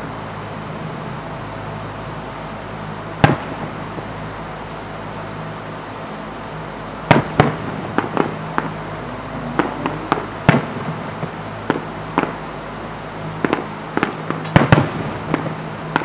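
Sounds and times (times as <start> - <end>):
steady low hum: 0.0 - 16.0
firework shells bursting: 7.1 - 8.8, 13.4 - 16.0.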